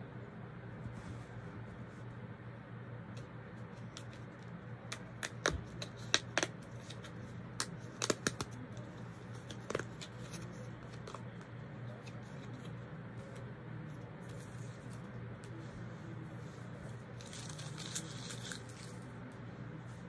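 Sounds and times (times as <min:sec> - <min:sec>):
steady low hum: 0:00.0 - 0:20.0
handling clicks and crinkles: 0:03.7 - 0:13.4, 0:16.9 - 0:19.1.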